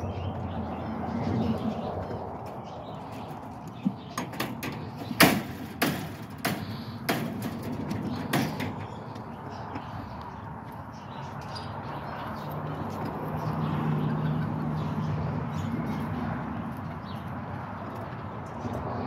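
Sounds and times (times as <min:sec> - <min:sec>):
rabbit knocking on wood and wire: 0:03.8 - 0:09.0.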